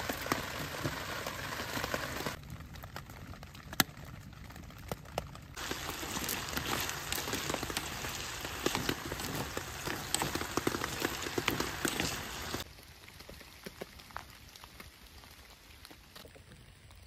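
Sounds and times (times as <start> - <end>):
fat popping and crackling: 0.0 - 14.7
meat sizzling in oil: 5.6 - 12.6.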